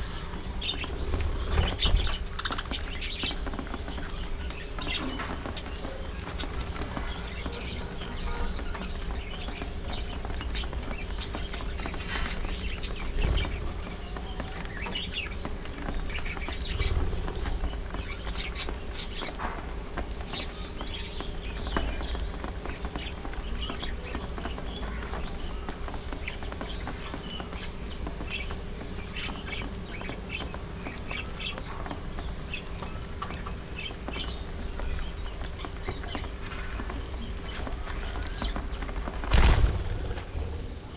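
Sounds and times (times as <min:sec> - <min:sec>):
budgerigars chirping and chattering: 0:00.0 - 0:19.3.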